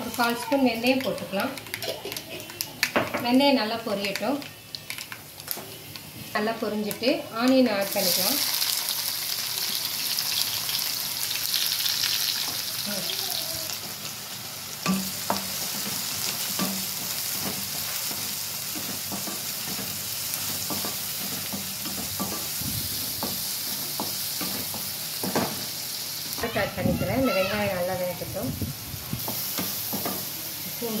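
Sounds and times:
onions sizzling in oil: 0.0s - 31.0s
spatula scraping and knocking pan: 14.9s - 25.6s.

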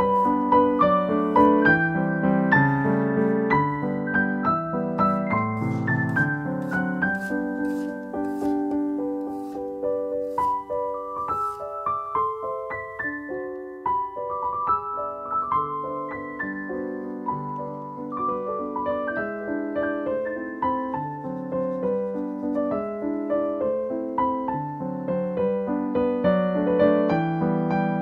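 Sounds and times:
solo piano melody: 0.0s - 28.0s
knife slicing on wooden cutting board: 5.6s - 9.7s.

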